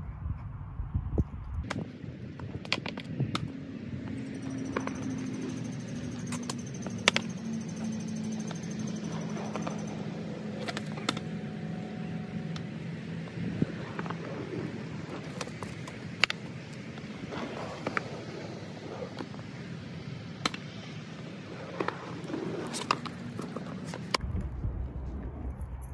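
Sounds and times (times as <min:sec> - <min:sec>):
skateboard wheels rolling on concrete: 0:01.5 - 0:25.9
skateboard clacking on ground: 0:01.6 - 0:03.6, 0:04.3 - 0:11.4, 0:13.6 - 0:19.5, 0:21.6 - 0:24.2.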